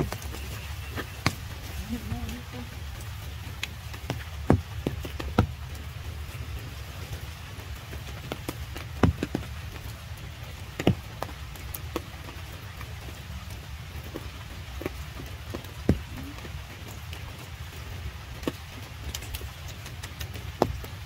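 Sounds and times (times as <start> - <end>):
rain falling: 0.0 - 21.0
raindrops tapping: 0.0 - 21.0
steady low rumble: 0.0 - 21.0.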